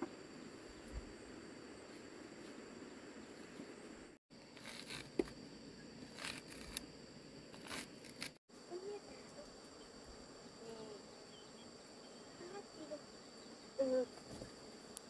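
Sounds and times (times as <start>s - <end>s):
crickets chirring: 0.0s - 15.0s
knife scraping corn cob: 4.5s - 5.4s, 6.0s - 6.9s, 7.6s - 8.4s.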